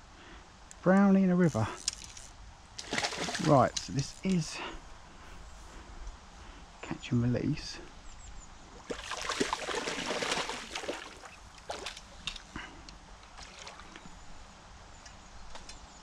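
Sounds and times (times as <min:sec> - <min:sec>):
fish splashing at the surface: 0:02.8 - 0:03.6, 0:08.8 - 0:12.0.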